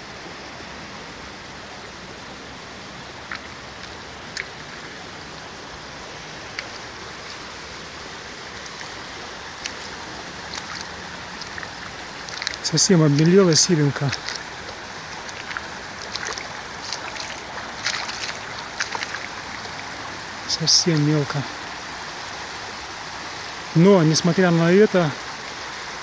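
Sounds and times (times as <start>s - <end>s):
river rippling over pebbles: 0.0s - 26.0s.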